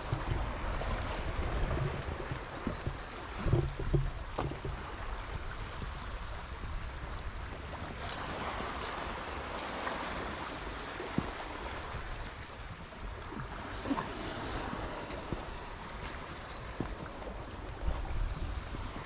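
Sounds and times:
wind buffeting microphone: 0.0 - 19.0
sea washing against rocks: 7.7 - 19.0.

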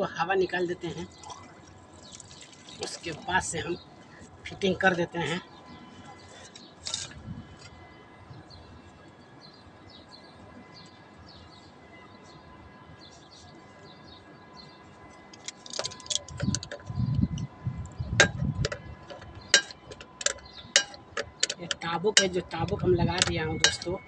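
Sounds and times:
metallic knocks and clicks: 18.2 - 22.3.

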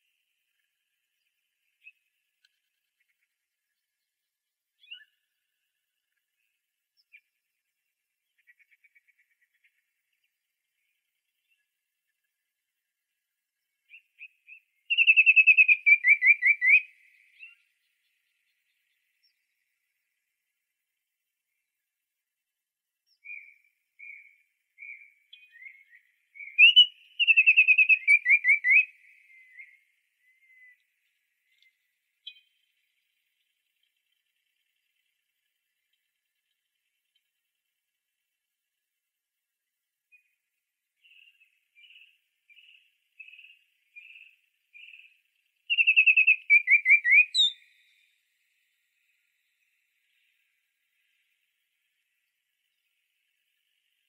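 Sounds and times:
songbird singing: 0.0 - 54.0
songbird whistling: 4.8 - 5.2, 13.9 - 17.6, 23.1 - 30.8, 31.5 - 32.5, 45.7 - 48.0.

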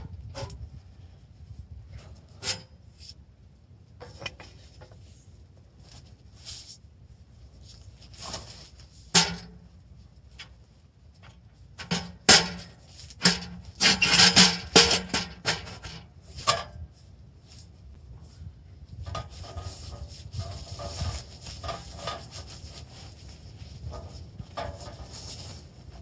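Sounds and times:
rustling and scraping: 0.0 - 26.0
sharp knocks and scrapes: 1.9 - 3.2, 4.0 - 6.8, 7.6 - 9.7, 11.2 - 17.6, 18.2 - 26.0.

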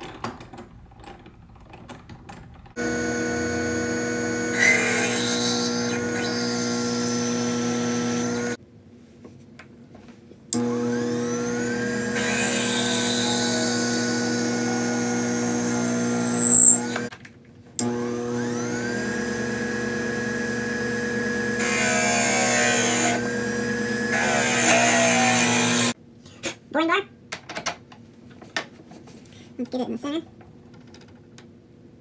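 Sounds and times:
drill bit boring into wood: 2.8 - 8.6, 10.6 - 17.1, 17.9 - 26.0
lathe motor whining: 2.8 - 8.6, 10.6 - 17.1, 17.8 - 26.0
sharp high squeal: 16.3 - 17.0.

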